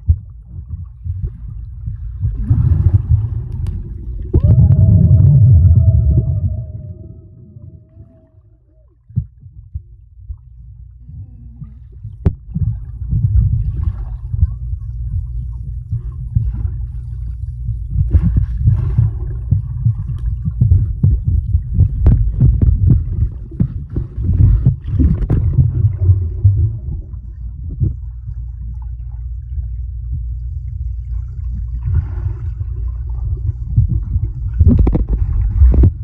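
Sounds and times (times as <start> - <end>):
underwater churning from kicking: 0.0 - 10.1, 11.5 - 36.0
underwater bubbles: 0.0 - 36.0
short underwater knocks: 33.8 - 36.0.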